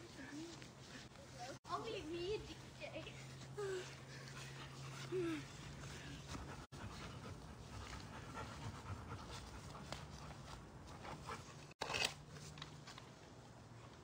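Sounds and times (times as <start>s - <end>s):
dog panting: 3.0s - 11.8s.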